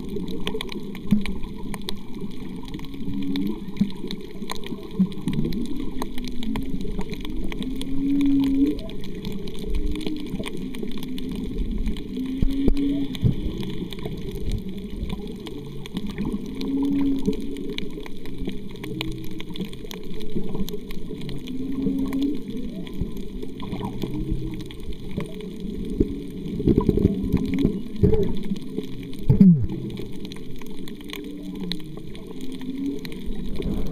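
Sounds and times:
underwater rush of water: 0.0s - 33.9s
low moaning tones: 31.1s - 33.9s.

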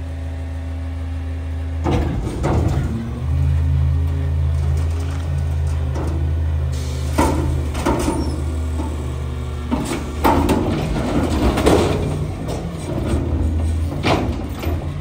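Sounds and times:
garbage truck engine running: 0.0s - 15.0s
metallic bangs and clanks: 9.7s - 15.0s.

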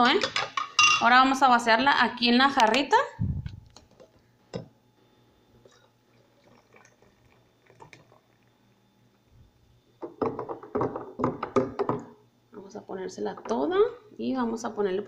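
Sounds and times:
thick liquid pouring and gurgling: 5.6s - 8.4s.

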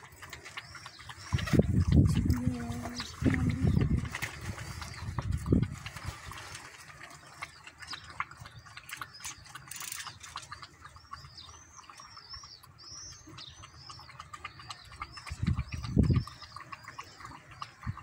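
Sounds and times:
small bird chirping: 7.2s - 18.0s.

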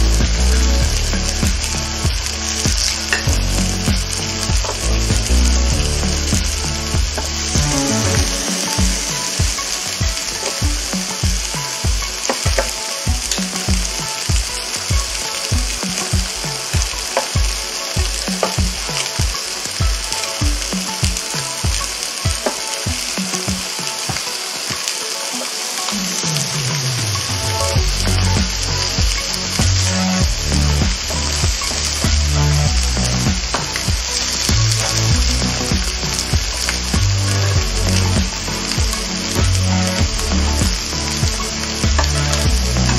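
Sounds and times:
low thumping beat: 0.0s - 24.2s, 27.8s - 42.9s
background music: 0.0s - 42.9s
meat sizzling on grill: 0.4s - 26.7s.

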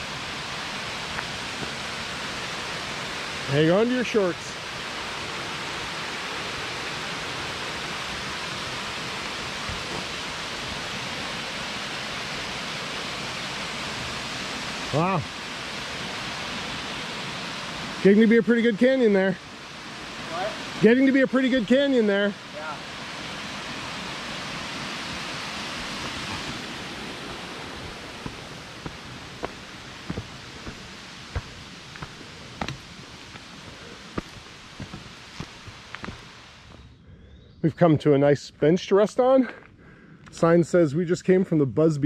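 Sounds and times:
creek water flowing: 0.0s - 36.8s.

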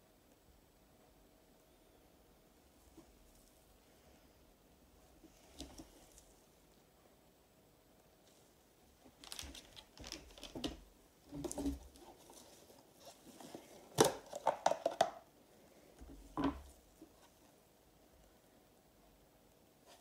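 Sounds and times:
plastic box crinkling and clicking: 9.1s - 12.1s, 13.9s - 15.2s.

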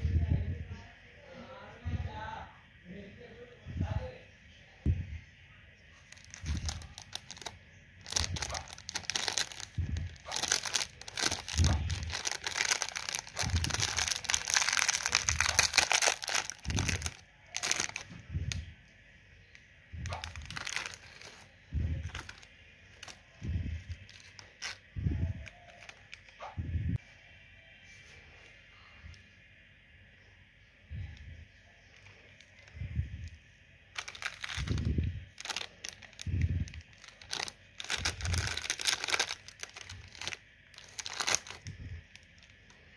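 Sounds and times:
plastic sweet wrappers crinkling: 6.0s - 18.7s, 19.4s - 26.4s, 31.8s - 42.9s.

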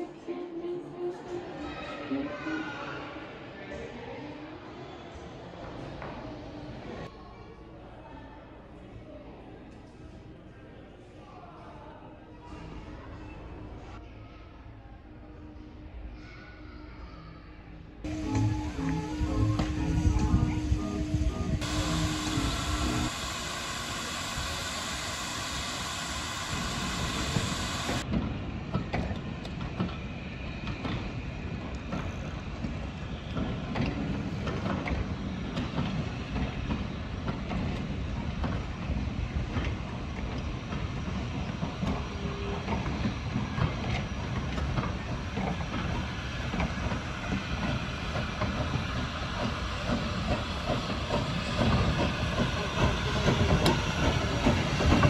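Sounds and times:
steam locomotive hiss: 18.1s - 28.0s, 45.4s - 55.0s
train wheels clickety-clack: 18.1s - 55.0s.

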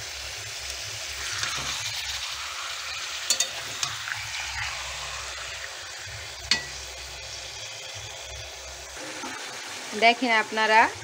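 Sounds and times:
chicken sizzling in hot oil: 0.0s - 11.0s
metal spatula clinking on pan: 3.3s - 4.0s, 6.5s - 6.8s.

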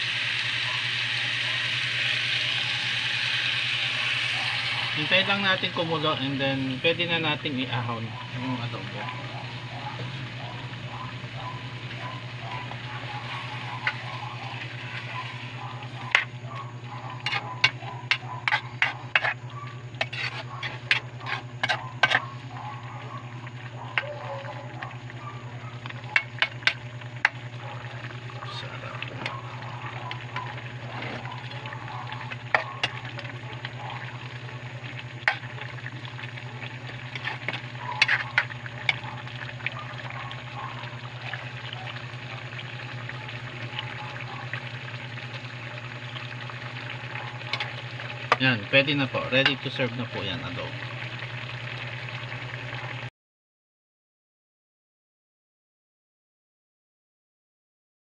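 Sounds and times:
food sizzling in metal pan: 0.0s - 25.2s, 25.8s - 43.8s, 44.6s - 52.7s
steady low hum: 6.7s - 48.7s.

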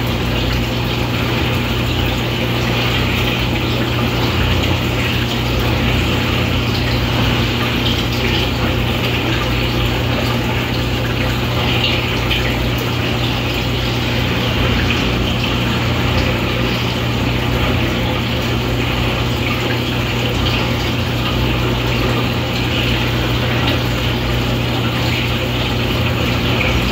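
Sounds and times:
aquarium pump hum: 0.0s - 26.9s
water splashing and trickling: 0.0s - 26.9s.

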